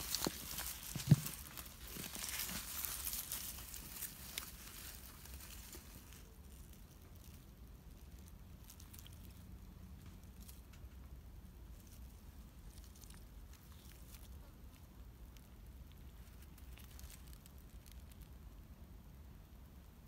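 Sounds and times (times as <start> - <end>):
rustling in dry grass and leaves: 0.0 - 18.4.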